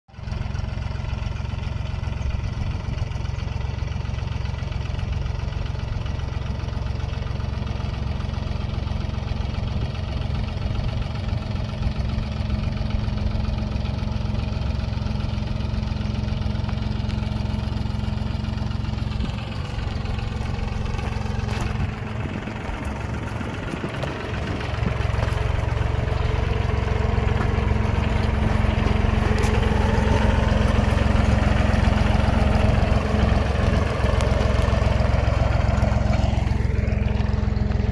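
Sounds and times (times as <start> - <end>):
tractor diesel engine idling: 0.1 - 37.9.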